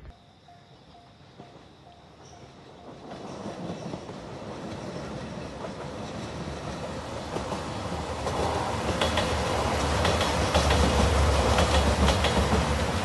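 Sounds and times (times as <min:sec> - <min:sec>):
diesel train engine rumble: 0:00.4 - 0:13.0
train wheel noise: 0:00.5 - 0:13.0
wheels clicking over rail joints: 0:01.4 - 0:13.0.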